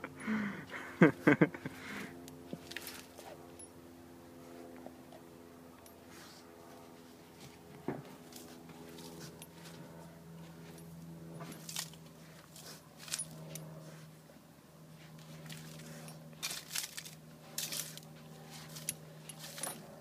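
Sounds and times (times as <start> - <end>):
steady low hum: 0.0 - 20.0
dog scraping gravel and leaves: 2.6 - 3.5, 6.2 - 14.2, 14.9 - 20.0.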